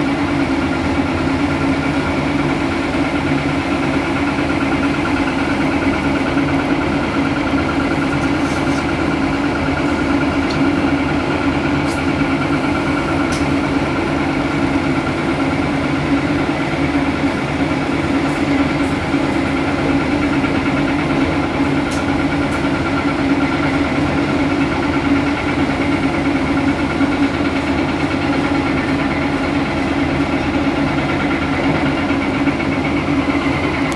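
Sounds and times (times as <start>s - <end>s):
excavator diesel engine working: 0.0s - 33.9s.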